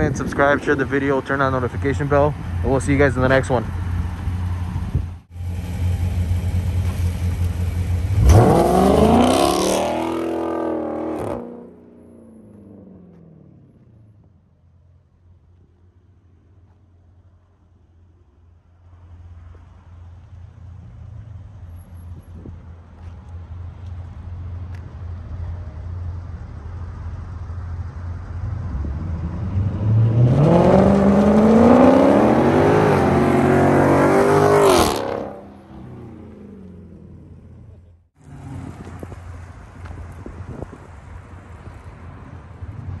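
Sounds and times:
muscle car engine rumbling: 0.0s - 43.0s
car engine revving hard: 8.0s - 11.8s, 29.0s - 37.4s.

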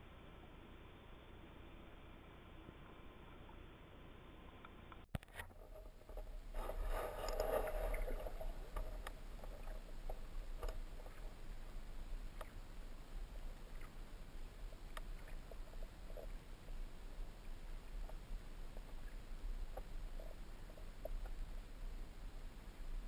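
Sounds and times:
underwater low rumble: 5.2s - 23.0s
water movement noise: 5.2s - 23.0s
faint clicks: 7.2s - 11.4s, 12.3s - 12.6s, 13.6s - 16.4s.

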